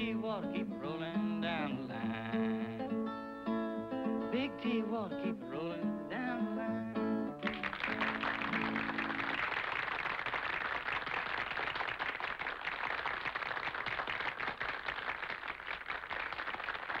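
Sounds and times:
audience applauding: 7.4 - 17.0.

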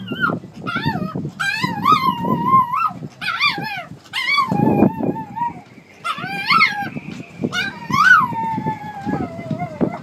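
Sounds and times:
dog howling: 0.0 - 10.0.

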